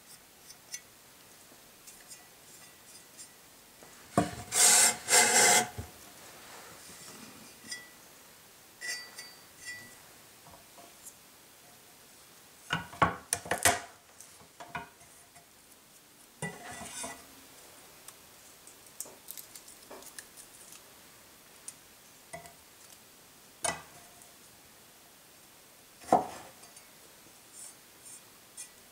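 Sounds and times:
garlic peeling clicks and scratching: 18.1 - 20.8.

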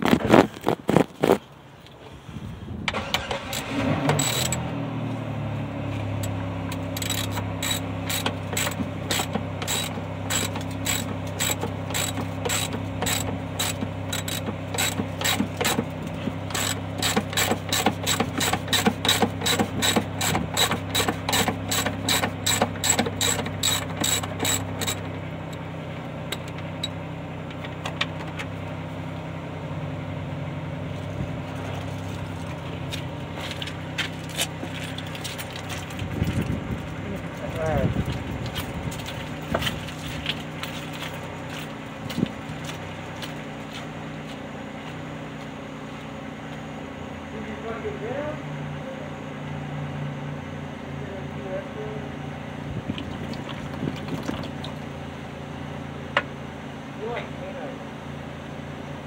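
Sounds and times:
engine humming: 0.0 - 59.0
ratchet wrench clicking: 3.5 - 4.6, 7.0 - 15.8, 16.5 - 25.0.

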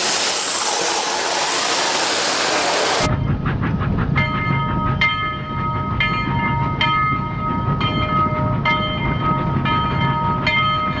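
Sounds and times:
toy train rumbling on track: 0.0 - 11.0.

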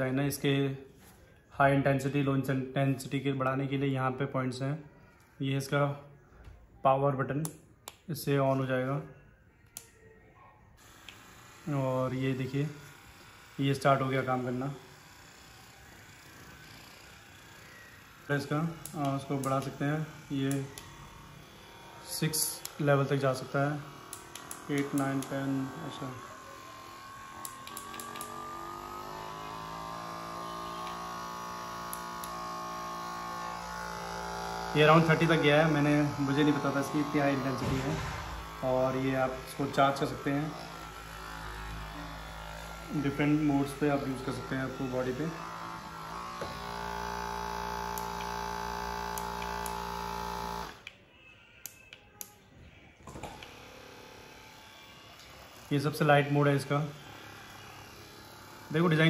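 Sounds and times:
massage gun motor whine: 10.8 - 59.0
sharp clicks: 24.1 - 25.3, 27.4 - 28.3.

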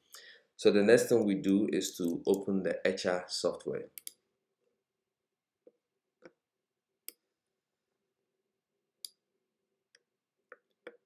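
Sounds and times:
computer mouse clicks: 4.0 - 4.2.

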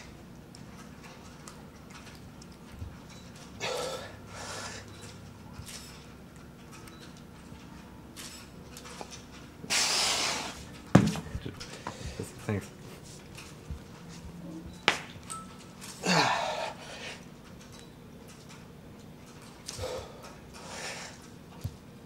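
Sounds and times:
man breathing heavily: 3.6 - 5.0, 11.7 - 12.4, 16.0 - 17.3, 19.7 - 21.3.

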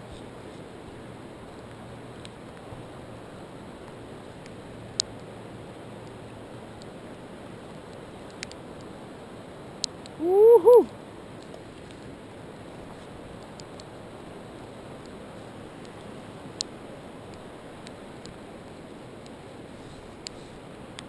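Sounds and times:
river current rushing: 7.0 - 11.4
rising and falling call: 10.2 - 10.9.

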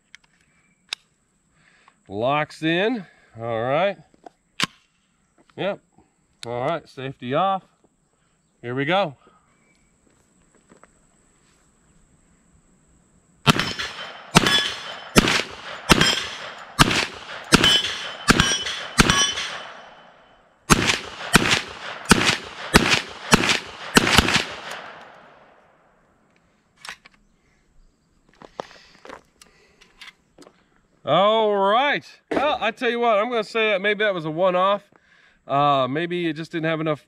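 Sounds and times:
bullets ringing on steel plates: 13.5 - 20.3
rifle gunshots: 13.5 - 25.6.

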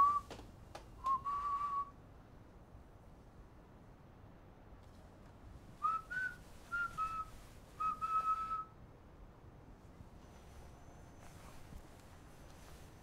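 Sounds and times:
person whistling: 0.0 - 0.3, 1.0 - 1.9, 5.8 - 8.7.

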